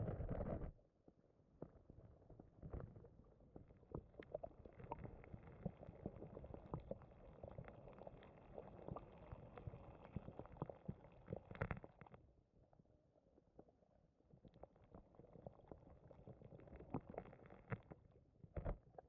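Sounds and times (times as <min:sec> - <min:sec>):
small clicks and pops: 0:03.6 - 0:12.2, 0:14.4 - 0:19.0.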